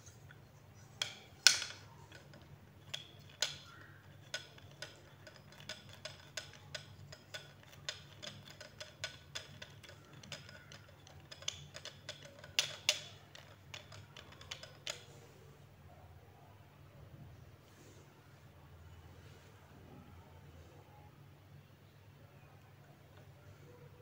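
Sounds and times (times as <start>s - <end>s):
plastic clamp clicking: 1.0s - 15.1s.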